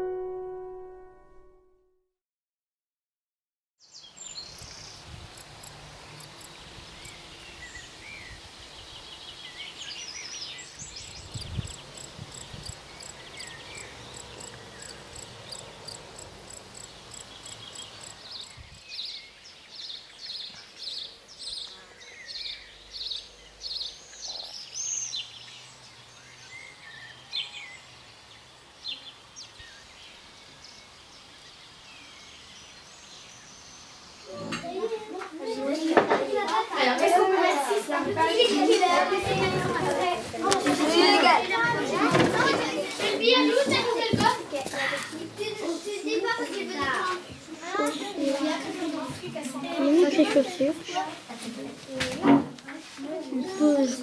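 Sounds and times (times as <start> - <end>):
birds singing and calling: 6.0 - 34.5.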